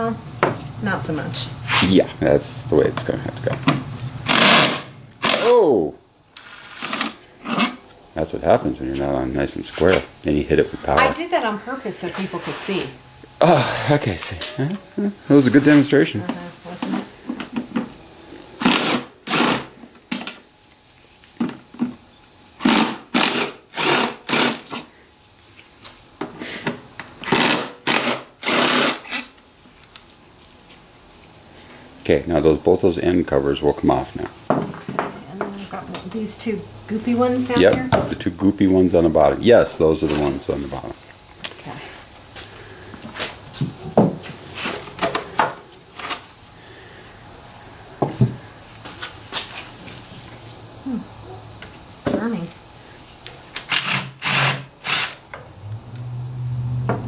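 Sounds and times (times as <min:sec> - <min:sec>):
faint steady hum: 0:00.0 - 0:57.0
cordless drill bursts: 0:04.2 - 0:05.5, 0:06.3 - 0:07.6, 0:18.5 - 0:19.7, 0:22.6 - 0:24.8, 0:27.2 - 0:29.3, 0:53.6 - 0:55.2.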